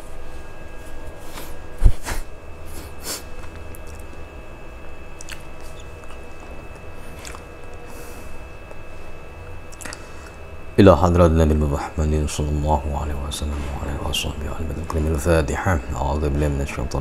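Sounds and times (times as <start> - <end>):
low electrical hum: 0.0 - 17.0
breath sounds: 9.8 - 10.4.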